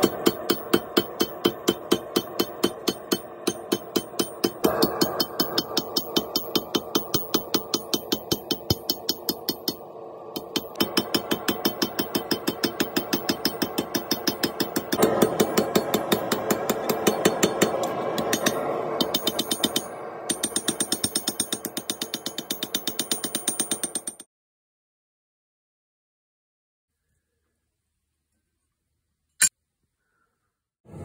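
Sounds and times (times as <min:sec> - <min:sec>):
steady mechanical hum: 0:00.0 - 0:21.4
hammer striking steel on anvil: 0:00.0 - 0:24.2.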